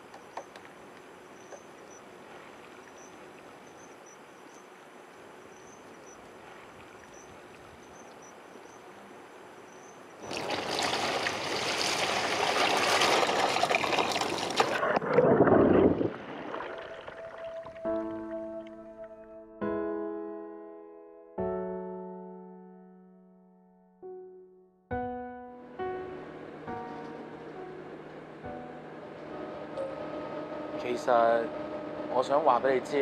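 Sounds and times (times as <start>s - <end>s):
water pouring and splashing: 10.2s - 18.3s
muffled underwater bubbling: 13.6s - 18.7s.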